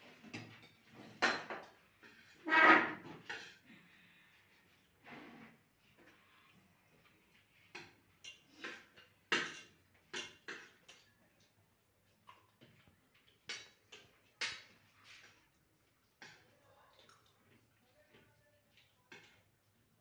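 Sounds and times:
eating clicks and smacks: 7.8 - 14.8.

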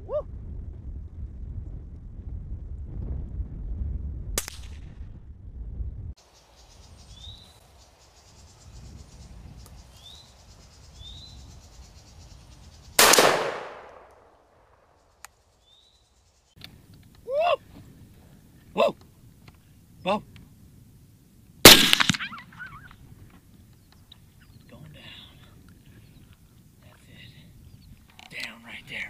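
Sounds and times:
low wind noise: 0.0 - 29.0
rifle shot with echo: 4.4 - 5.0, 13.0 - 14.3, 21.6 - 22.4
sharp crack: 4.4 - 5.1, 13.0 - 15.4, 21.6 - 22.7
insects chirring: 6.2 - 13.0, 13.8 - 16.9.

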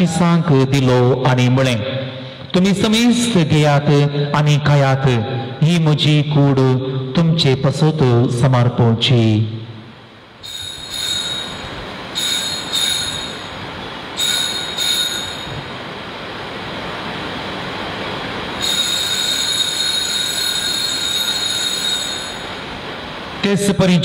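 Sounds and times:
altar bells ringing: 10.4 - 15.8, 18.6 - 22.7.

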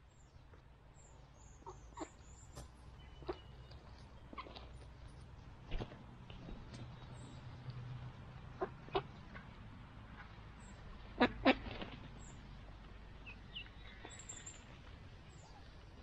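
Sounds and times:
ducklings peeping: 1.1 - 4.9.

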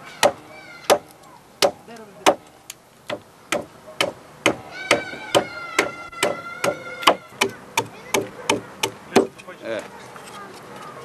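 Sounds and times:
hatchet chopping wood: 0.2 - 2.4, 3.1 - 9.4.

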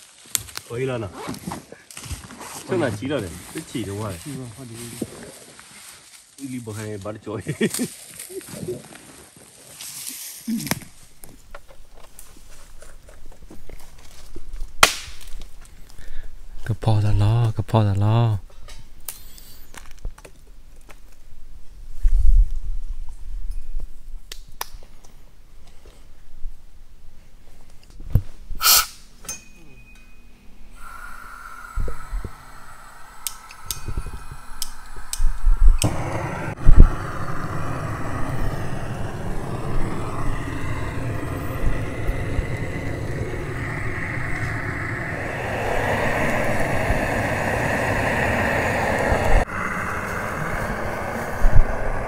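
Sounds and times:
motor vehicle running: 35.8 - 52.0.

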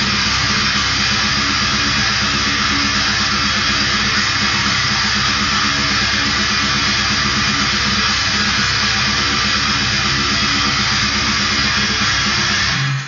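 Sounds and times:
distorted electric guitar riff: 0.0 - 13.0.

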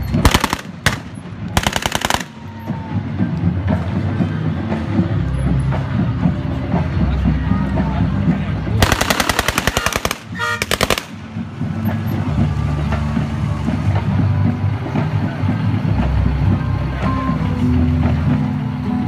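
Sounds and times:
truck engines running: 0.0 - 19.0
machine gun bursts: 8.8 - 11.1.

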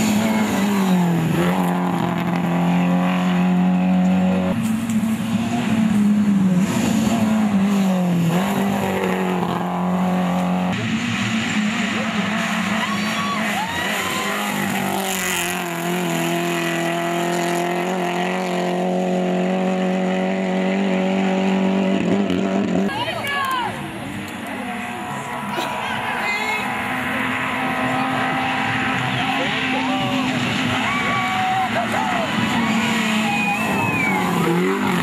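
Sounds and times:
rally car engines at high revs: 0.0 - 35.0.

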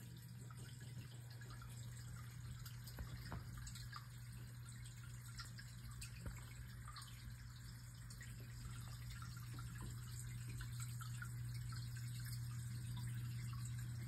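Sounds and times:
water dripping into pond: 0.1 - 14.0.

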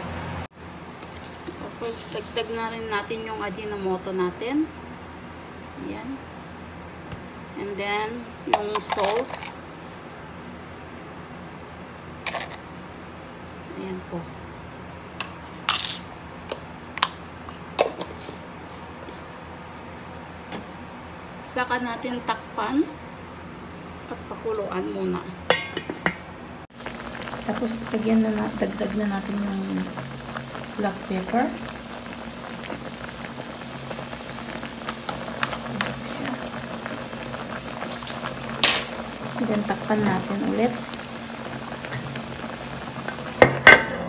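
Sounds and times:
sharp metal clink: 15.2 - 16.1.

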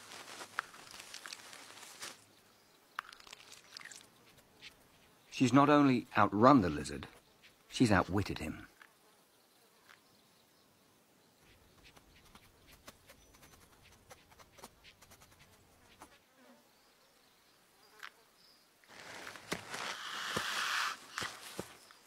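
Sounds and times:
scratchy rustle: 0.0 - 2.2, 18.9 - 21.9
small ticks: 2.9 - 5.1, 11.4 - 16.2
faint insect buzzing: 8.7 - 10.4, 11.3 - 22.0.

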